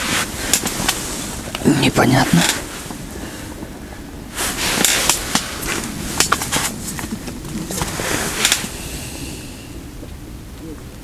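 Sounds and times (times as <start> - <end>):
fishing tackle rustling: 4.4 - 8.8.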